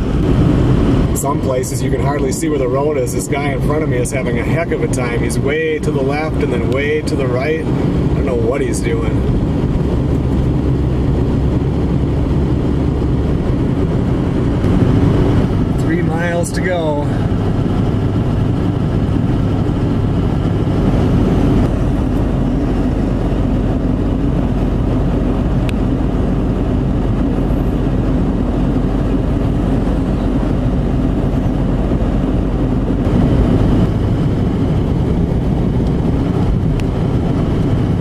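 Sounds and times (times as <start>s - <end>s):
vehicle engine and tire noise: 0.0s - 38.0s.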